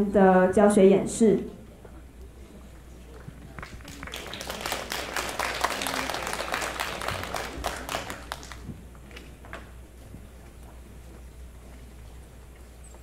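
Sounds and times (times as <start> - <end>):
audience applauding: 3.5 - 8.7.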